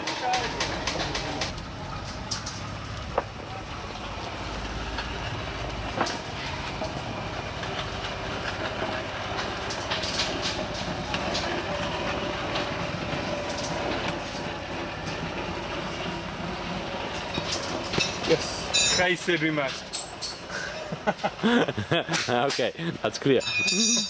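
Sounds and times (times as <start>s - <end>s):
machine running on rails: 0.0s - 21.3s.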